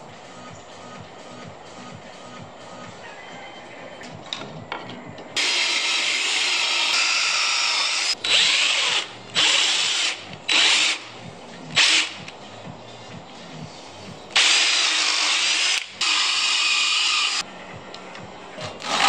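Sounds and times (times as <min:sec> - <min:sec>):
cordless drill boring into wood: 0:05.4 - 0:11.0, 0:14.4 - 0:17.4.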